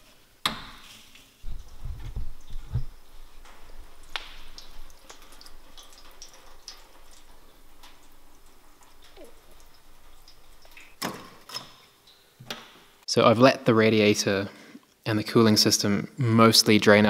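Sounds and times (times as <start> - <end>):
coolant dripping and splashing: 0.6 - 13.0.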